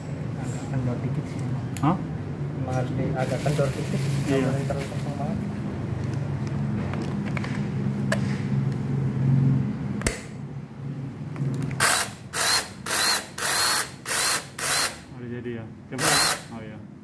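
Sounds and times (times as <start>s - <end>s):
sharp click: 10.0s - 10.4s.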